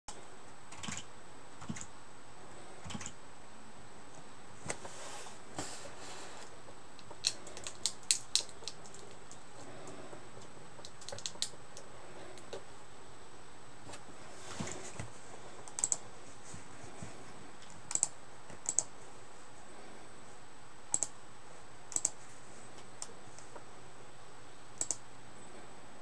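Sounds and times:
keyboard keys clicking: 10.4 - 12.5, 15.7 - 16.0, 17.9 - 18.9, 20.9 - 21.1, 21.9 - 22.2, 24.8 - 25.0.

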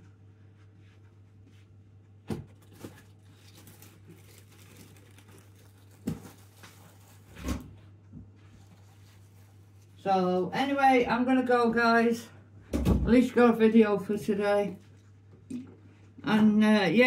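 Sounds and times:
packaging rustling: 2.5 - 7.4.

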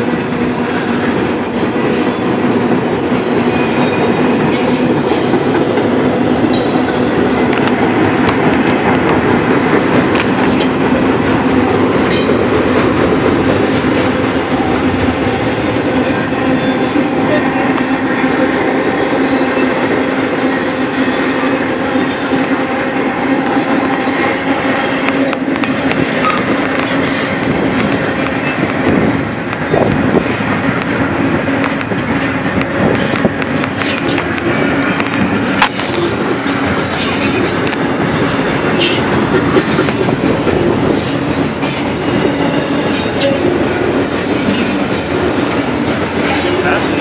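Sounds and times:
wheels clicking over rail joints: 0.0 - 15.2, 25.0 - 47.0
train wheels rumbling on rail: 0.0 - 47.0.

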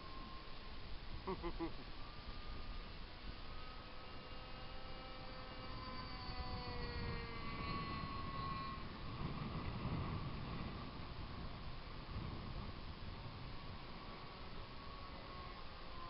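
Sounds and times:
model airplane motors whining: 0.0 - 16.0
wind rumble on microphone: 4.2 - 16.0.

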